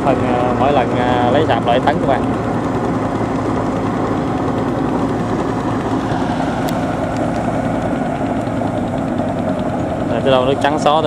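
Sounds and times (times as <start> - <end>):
combine harvester engine running: 0.0 - 11.0.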